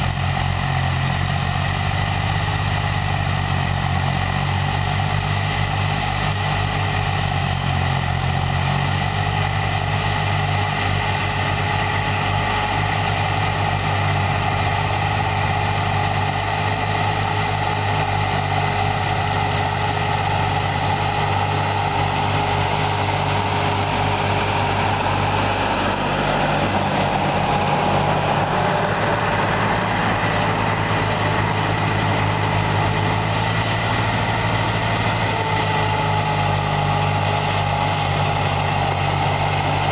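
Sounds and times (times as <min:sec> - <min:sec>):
tractor diesel engines under load: 0:00.0 - 0:39.9.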